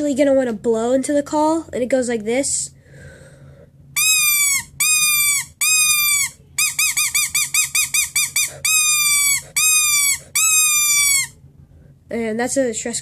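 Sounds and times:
squirrel call squeals: 4.0s - 11.4s.

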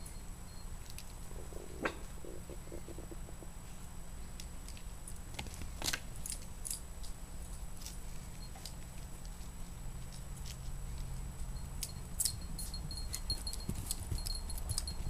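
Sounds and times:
low hum: 0.0s - 5.2s
collar tags clinking: 4.7s - 15.0s.

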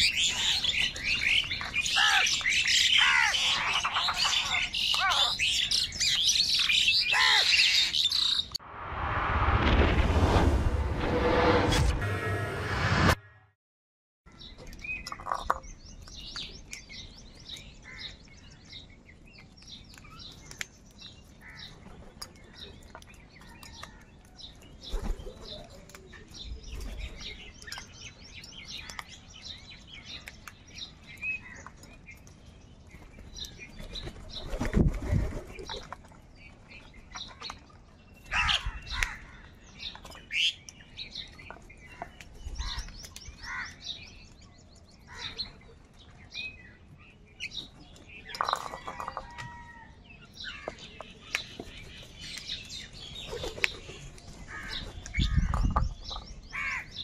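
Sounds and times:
crows chirping and calling: 0.0s - 8.5s, 16.4s - 18.9s, 20.0s - 32.2s, 36.9s - 57.0s
harsh crow calls: 1.8s - 5.4s, 7.1s - 8.0s, 43.4s - 43.9s, 56.5s - 57.0s.

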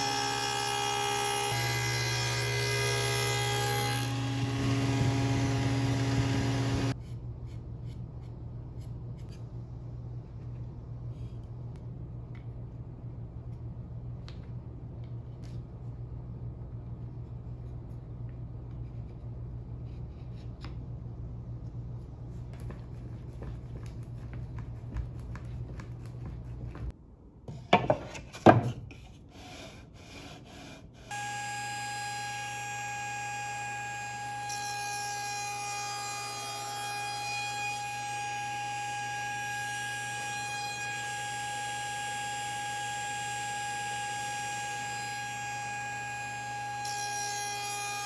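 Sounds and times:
steady low hum: 1.4s - 27.6s
machine drone with high whine: 1.5s - 7.0s.

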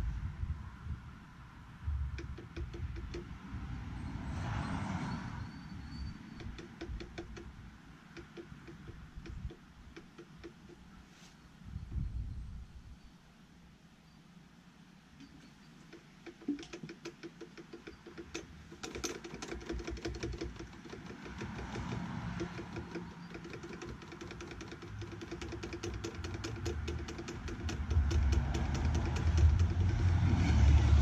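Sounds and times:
rapid mechanical clicking: 1.9s - 3.4s, 5.8s - 10.9s, 15.2s - 31.0s.

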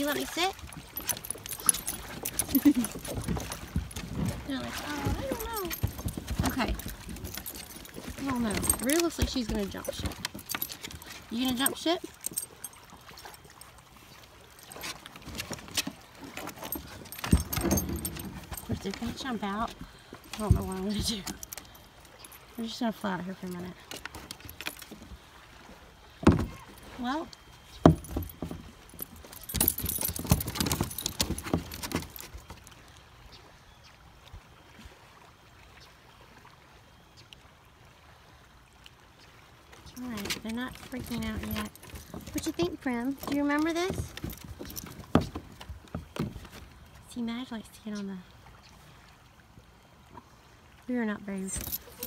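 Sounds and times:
collar tags jingling: 0.0s - 25.0s, 26.3s - 32.7s, 39.9s - 46.6s, 51.4s - 52.0s.

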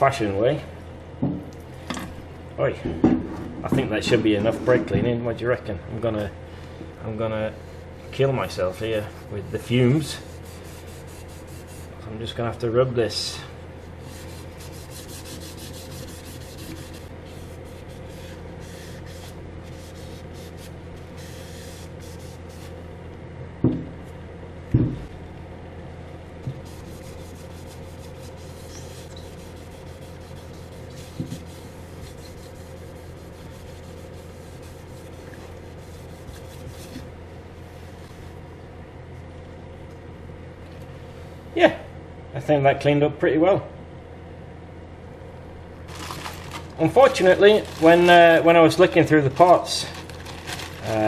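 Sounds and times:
abrasive pad scrubbing metal disc: 7.8s - 12.0s, 13.9s - 22.8s, 26.5s - 37.1s.

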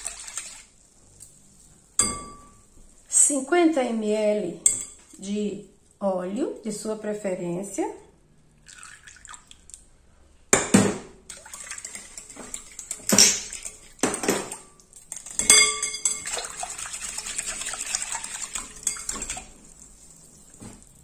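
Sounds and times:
rapid whisking of liquid: 0.0s - 0.8s, 11.3s - 21.0s
whisk clinking against glass bowl: 11.6s - 19.5s.

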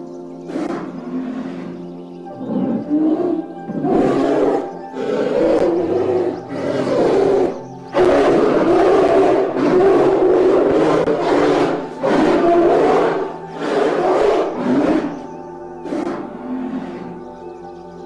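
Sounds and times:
polar bear growling: 0.0s - 17.4s.

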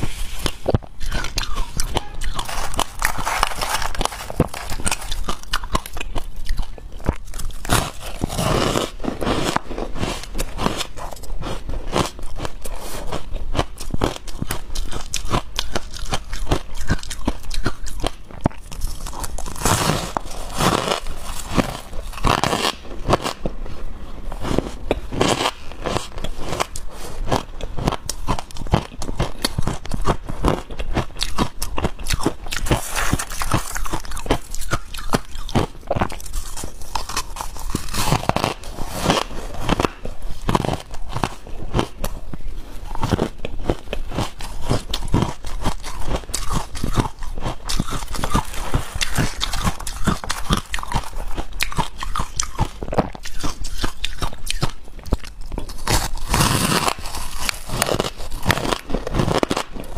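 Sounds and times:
ice crunching while chewed: 0.0s - 59.9s.

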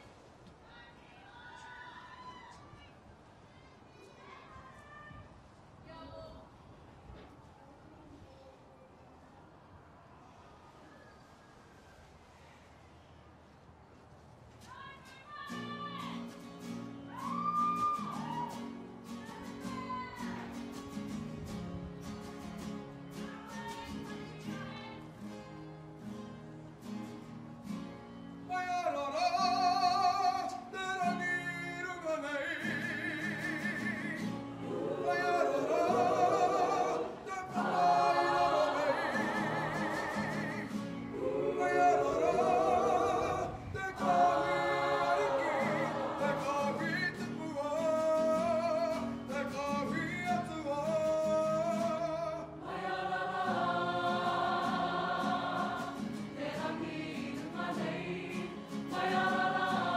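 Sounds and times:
choir singing in unison: 32.7s - 47.2s, 52.6s - 59.9s.

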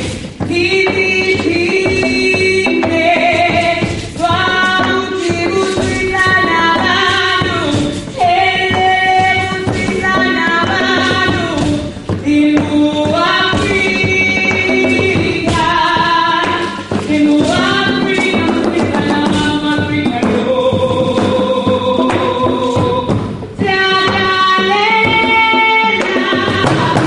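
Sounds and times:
group singing in harmony: 1.5s - 27.0s.

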